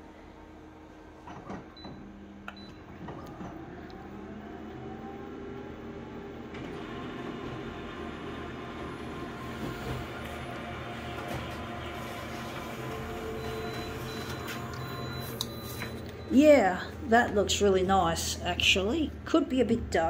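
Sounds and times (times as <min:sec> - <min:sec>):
copier whirring: 0:00.0 - 0:18.7
copier beeps: 0:01.7 - 0:03.2, 0:08.9 - 0:17.7.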